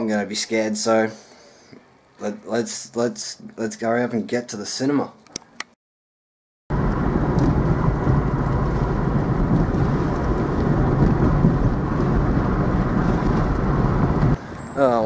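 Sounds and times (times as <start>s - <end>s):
car driving heard from inside: 6.7s - 14.4s.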